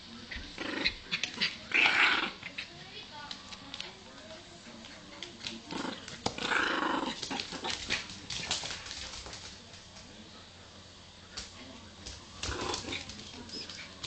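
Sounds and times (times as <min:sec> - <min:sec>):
dog growling: 0:00.3 - 0:02.7, 0:05.6 - 0:08.1, 0:12.4 - 0:14.0.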